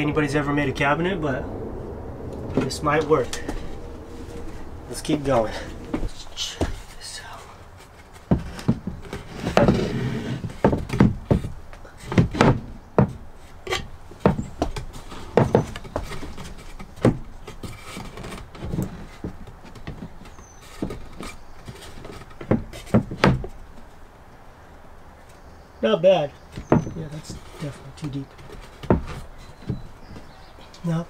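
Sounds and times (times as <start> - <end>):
wood scraping: 0.0 - 25.5, 26.3 - 31.0
wooden panels knocking: 8.0 - 23.9, 26.5 - 27.5, 28.3 - 30.3.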